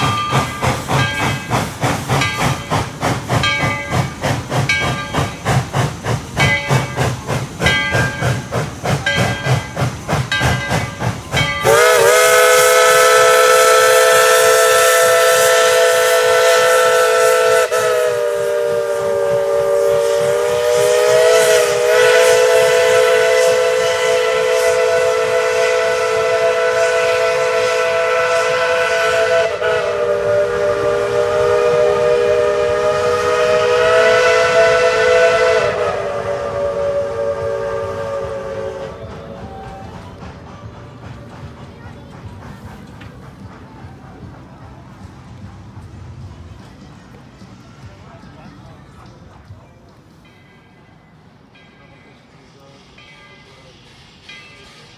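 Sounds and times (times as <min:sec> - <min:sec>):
steam locomotive exhaust chuffs: 0:00.0 - 0:54.9
steam whistle chord: 0:11.6 - 0:39.9.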